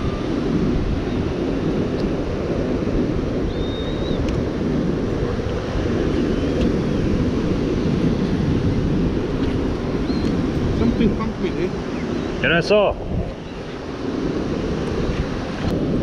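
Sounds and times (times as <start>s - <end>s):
sea surf rushing: 0.0s - 16.0s
wind buffeting microphone: 0.0s - 16.0s
faint high chirp: 3.5s - 4.2s, 10.0s - 10.4s.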